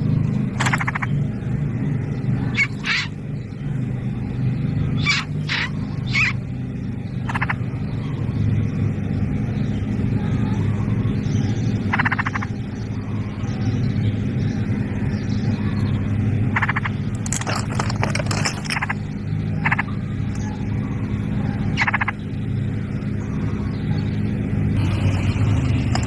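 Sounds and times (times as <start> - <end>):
raspy bird chirps: 0.0 - 8.8, 9.4 - 17.2, 18.4 - 25.6
low engine hum: 0.0 - 26.0.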